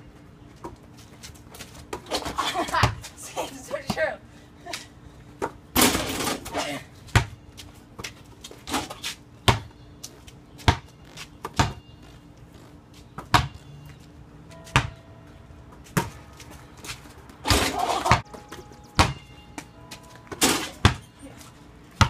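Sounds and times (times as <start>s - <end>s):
basketball bouncing and hitting hoop: 1.5s - 3.2s, 5.4s - 7.4s, 8.0s - 9.8s, 10.6s - 13.9s, 14.6s - 15.0s, 15.7s - 21.2s.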